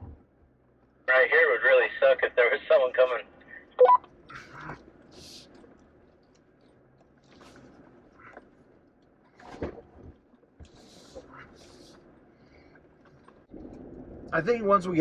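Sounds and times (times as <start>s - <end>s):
vehicle cab rumble: 0.0s - 15.0s
creaks rattles and knocks: 4.1s - 11.5s.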